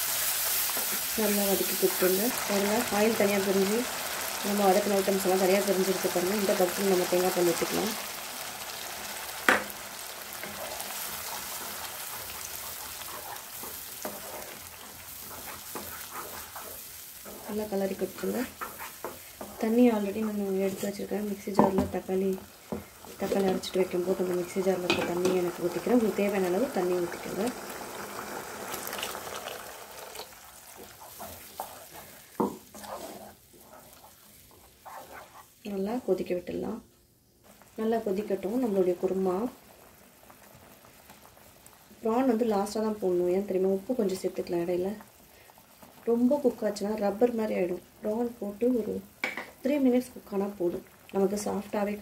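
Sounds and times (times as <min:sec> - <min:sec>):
masala sizzling in a pan: 0:00.0 - 0:52.0
spatula taps and scrapes: 0:18.4 - 0:19.6
spoon knocking against pan: 0:21.6 - 0:22.0.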